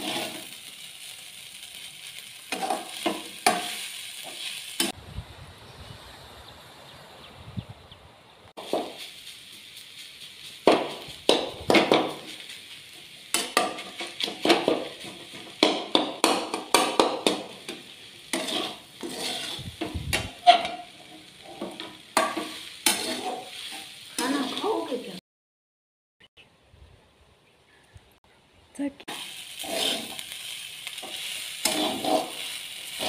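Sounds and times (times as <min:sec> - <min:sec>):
metal spatula scraping a pan: 0:00.0 - 0:01.1, 0:01.8 - 0:05.0, 0:08.6 - 0:25.0, 0:29.1 - 0:33.0
light sizzle: 0:00.0 - 0:07.2, 0:08.5 - 0:25.2, 0:28.8 - 0:33.0.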